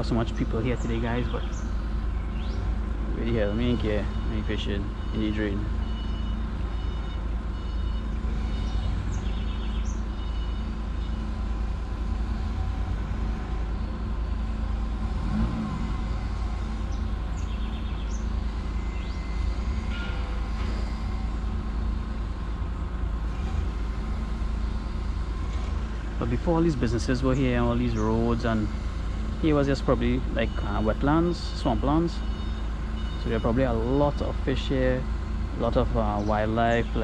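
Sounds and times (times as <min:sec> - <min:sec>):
vehicle engines running: 0:00.0 - 0:37.0.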